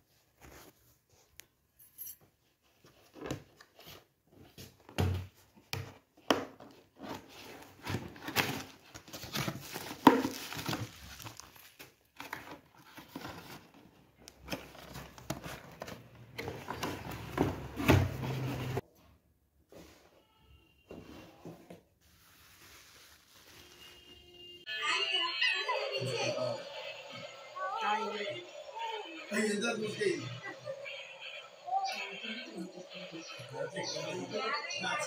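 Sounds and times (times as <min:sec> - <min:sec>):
bubble wrap crinkling: 0:07.6 - 0:13.8, 0:22.1 - 0:24.2.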